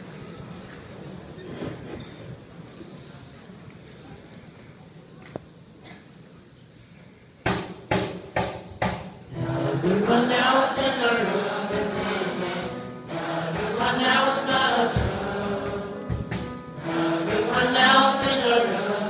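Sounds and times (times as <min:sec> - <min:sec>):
teenage boys singing together: 0:09.3 - 0:19.0.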